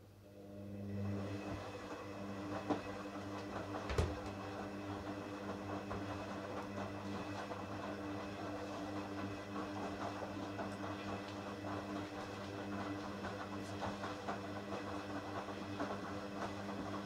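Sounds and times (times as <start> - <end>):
washing machine motor hum: 0.0 - 17.0
wet laundry tumbling: 1.3 - 17.0
washing machine knock: 3.4 - 4.5.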